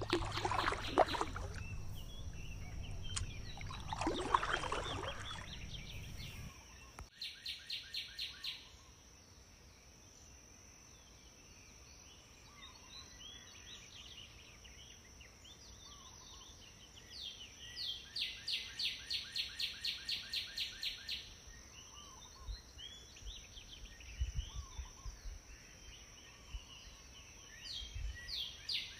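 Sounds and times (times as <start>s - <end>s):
duckling peeping: 0.0s - 6.5s
low thumps: 0.0s - 6.5s.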